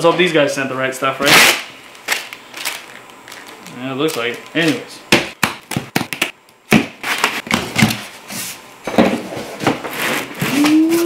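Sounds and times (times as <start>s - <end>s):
cardboard scraping and rustling: 7.0s - 11.0s.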